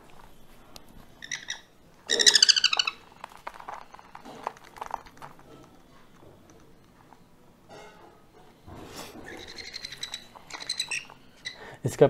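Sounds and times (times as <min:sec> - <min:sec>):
parrot chicks begging calls: 0:01.2 - 0:03.2, 0:09.1 - 0:11.8.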